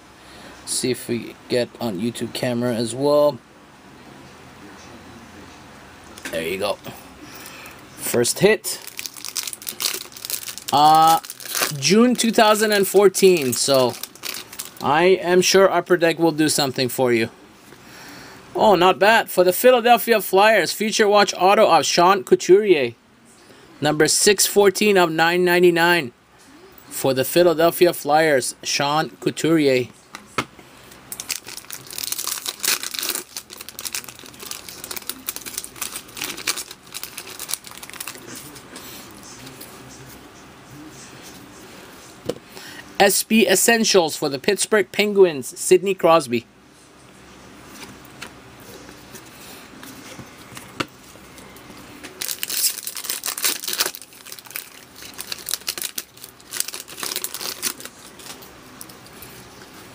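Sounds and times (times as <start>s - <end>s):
foil wrapper crinkling and tearing: 8.8s - 14.9s, 31.1s - 38.5s, 52.1s - 58.5s.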